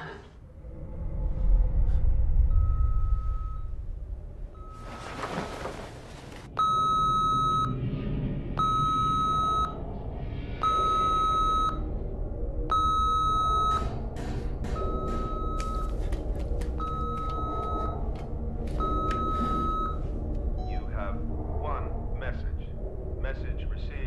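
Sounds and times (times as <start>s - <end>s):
answering machine beeps: 6.6s - 7.8s, 8.6s - 9.8s, 10.6s - 11.8s, 12.7s - 13.9s, 18.8s - 20.0s.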